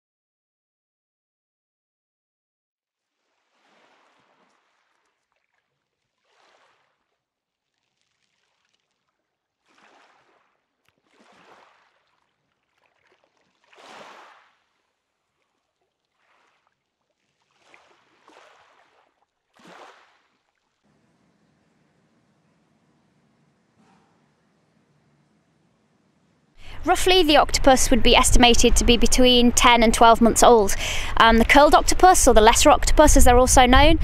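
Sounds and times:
small waves washing in: 0:03.1 - 0:27.8, 0:30.1 - 0:32.1.

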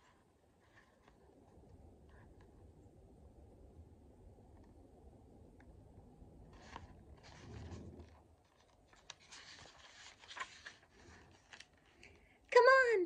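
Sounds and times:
paper clicks and scrapes: 0:06.5 - 0:12.0
paper page turning: 0:06.5 - 0:12.0.

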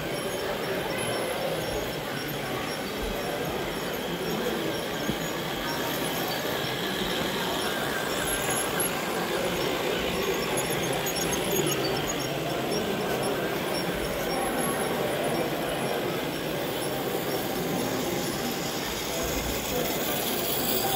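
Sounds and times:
model trains running on track: 0:00.0 - 0:20.9
wheels squeaking on rails: 0:00.0 - 0:20.9.

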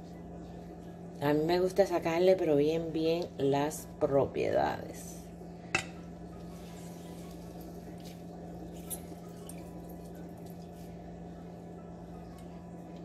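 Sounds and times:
steady low hum: 0:00.0 - 0:13.0
water dripping into a glass cup: 0:08.7 - 0:10.7.

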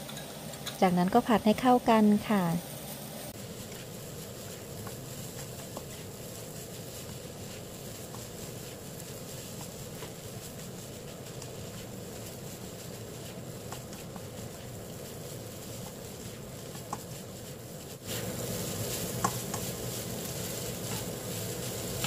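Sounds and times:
rice sizzling in a wok: 0:00.0 - 0:22.0
spatula scraping a wok: 0:03.3 - 0:22.0.

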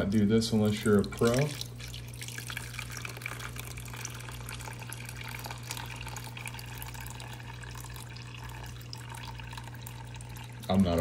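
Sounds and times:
water splashing into a tub: 0:00.6 - 0:11.0.

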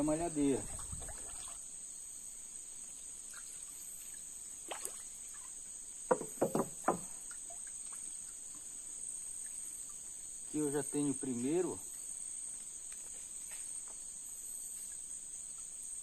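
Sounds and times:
high-pitched insect chorus: 0:00.0 - 0:16.0
water splashes and drips: 0:00.4 - 0:01.7, 0:03.2 - 0:10.5.

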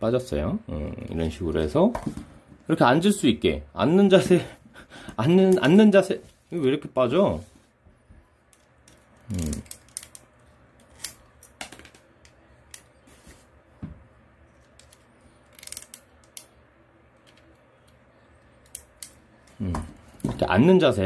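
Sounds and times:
action figure joints clicking: 0:14.8 - 0:16.5.

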